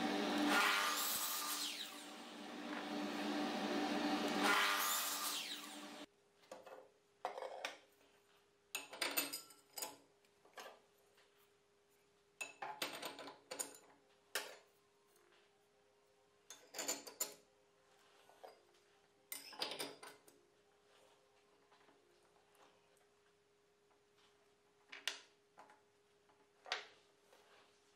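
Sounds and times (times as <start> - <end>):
saw blade spinning down: 0.0 - 6.1.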